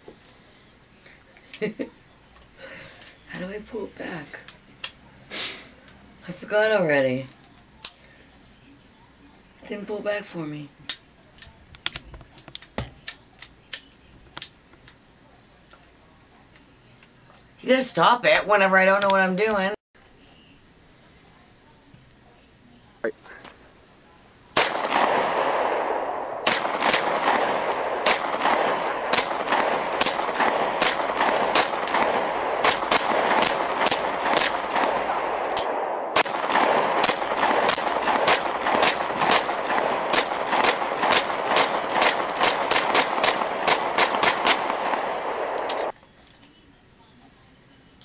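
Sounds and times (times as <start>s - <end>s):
pistol shots: 24.6s - 45.9s.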